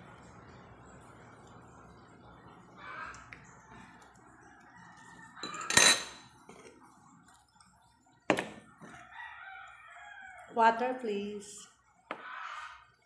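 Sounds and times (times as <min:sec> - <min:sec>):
drinking glass clinking: 0:05.4 - 0:06.4.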